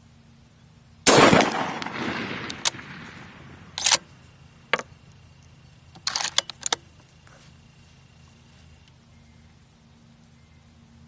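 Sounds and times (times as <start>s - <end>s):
rifle shot: 1.1s - 4.2s
sharp clicks: 3.7s - 4.2s, 5.9s - 6.9s.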